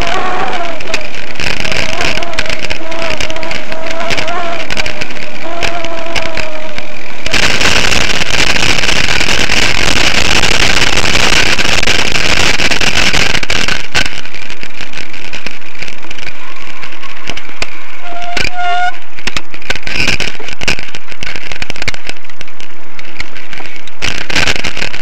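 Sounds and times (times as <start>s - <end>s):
thin wavering squeal: 0.0s - 7.5s
bicycle rolling noise: 0.0s - 25.0s
wind rushing on microphone: 0.0s - 25.0s.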